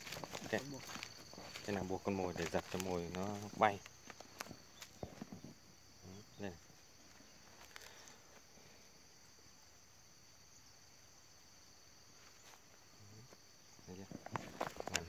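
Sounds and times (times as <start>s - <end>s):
high-pitched insect chirring: 0.0s - 8.3s.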